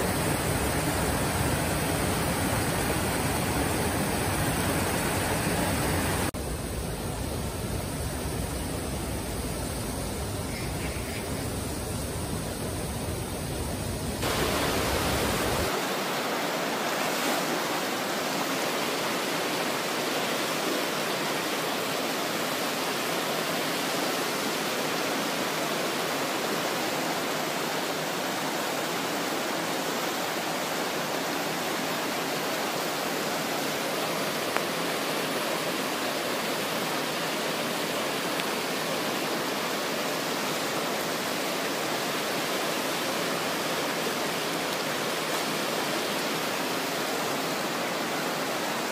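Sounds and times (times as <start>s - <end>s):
river rushing over rocks: 0.0s - 6.3s, 14.2s - 48.9s.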